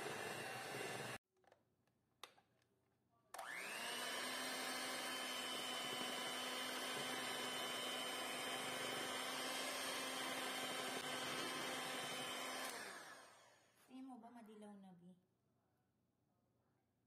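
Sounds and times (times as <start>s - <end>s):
electric hand mixer whining: 0.0s - 1.2s, 3.4s - 13.8s.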